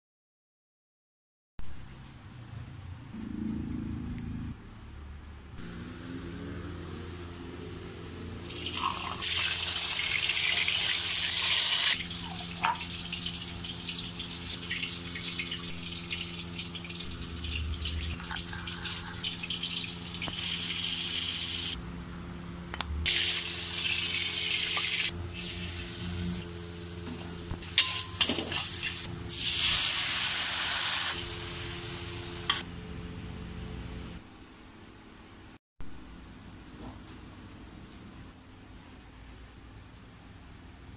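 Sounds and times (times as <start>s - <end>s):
loud cooking hiss: 8.5s - 12.0s, 23.1s - 27.8s, 28.4s - 32.6s
steady low hum: 12.0s - 30.0s.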